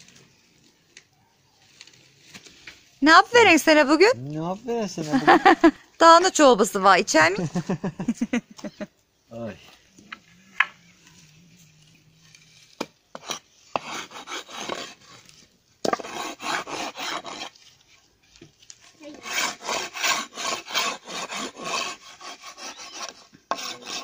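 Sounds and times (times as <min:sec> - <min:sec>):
hand tool rasping wood: 0:12.7 - 0:17.6, 0:18.8 - 0:24.0.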